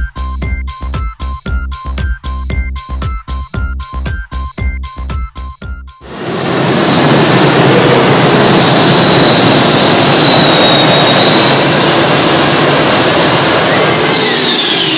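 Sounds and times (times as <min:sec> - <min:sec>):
gas turbine engine roaring: 0:06.0 - 0:14.9.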